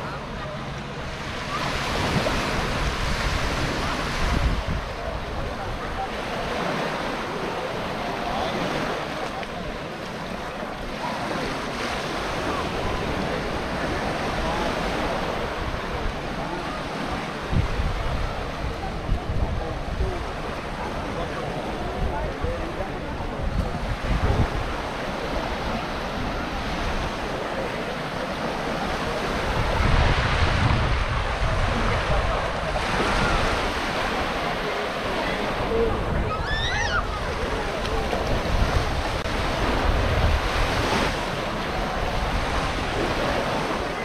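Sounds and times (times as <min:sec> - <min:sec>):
surf washing onto beach: 0:00.0 - 0:44.0
wind buffeting microphone: 0:01.0 - 0:06.1, 0:17.4 - 0:20.3, 0:21.1 - 0:27.6, 0:28.8 - 0:34.8, 0:35.6 - 0:44.0.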